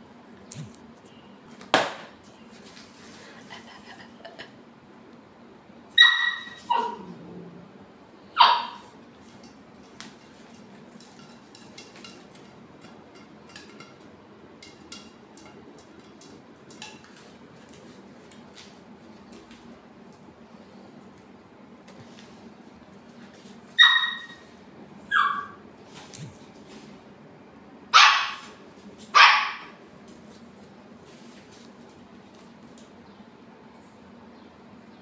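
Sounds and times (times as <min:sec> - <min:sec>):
puppy barking high-pitched: 0:05.9 - 0:07.2, 0:08.2 - 0:08.9, 0:23.8 - 0:25.6, 0:27.9 - 0:29.8.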